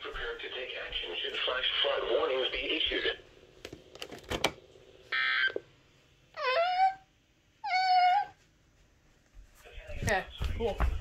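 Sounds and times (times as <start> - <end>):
cat meowing: 6.3 - 8.4.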